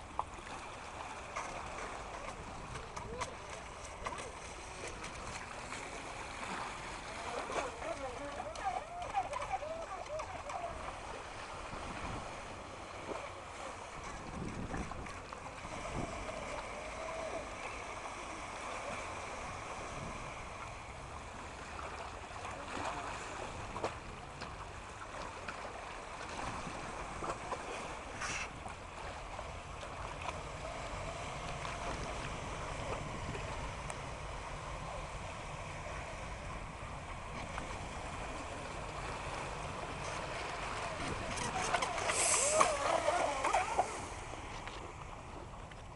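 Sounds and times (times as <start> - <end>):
small sea waves washing in: 0.0 - 45.9
wind buffeting microphone: 1.6 - 21.8, 26.3 - 45.9.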